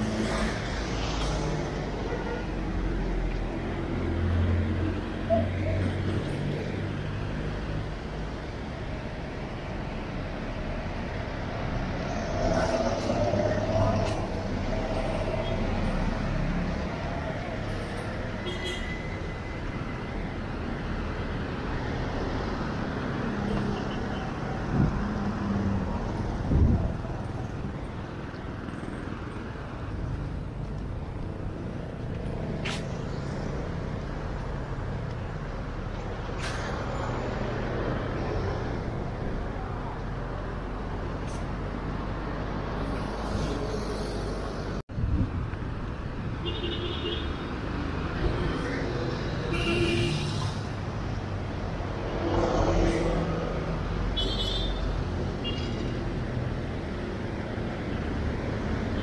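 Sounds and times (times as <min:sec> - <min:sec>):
vehicles passing in traffic: 0:00.0 - 0:59.0.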